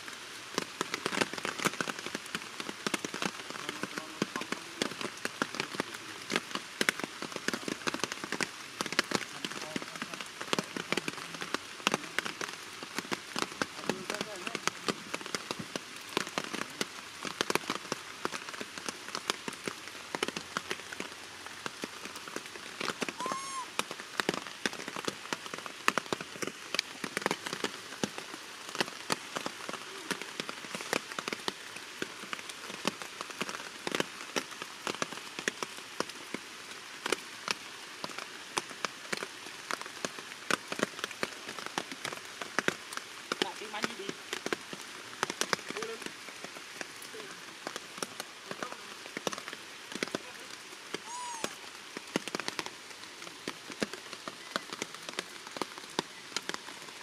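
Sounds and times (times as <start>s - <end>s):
heavy rain falling: 0.0s - 57.0s
raindrops ticking on surfaces: 0.0s - 57.0s
short high call: 23.2s - 23.7s, 51.0s - 51.6s.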